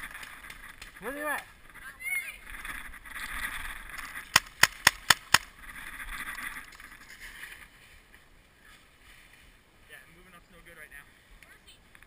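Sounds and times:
paintball marker shots: 4.3s - 5.5s.

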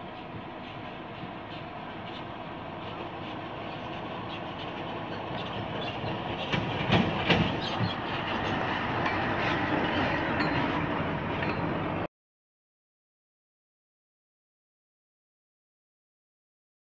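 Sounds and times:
truck diesel engine passing: 0.0s - 12.1s
loud knocks and rattles: 6.4s - 10.8s.

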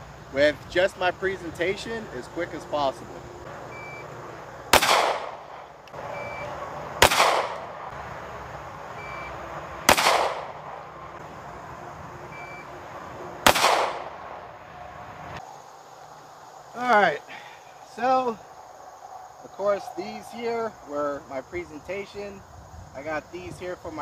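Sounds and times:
pistol shots with echo: 4.7s - 5.7s, 7.0s - 7.9s, 9.9s - 10.9s, 13.4s - 14.4s.

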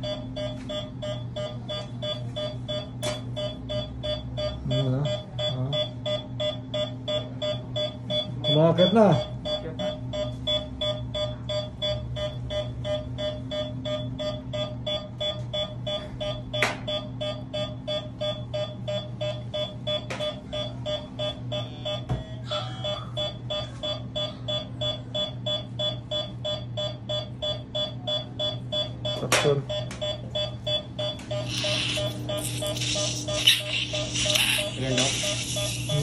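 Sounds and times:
rapid electronic beeping: 0.0s - 11.3s, 26.8s - 36.0s.

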